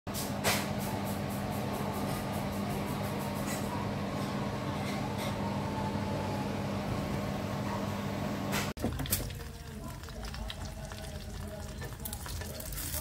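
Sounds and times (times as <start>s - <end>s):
steady mechanical hum: 0.1s - 8.8s.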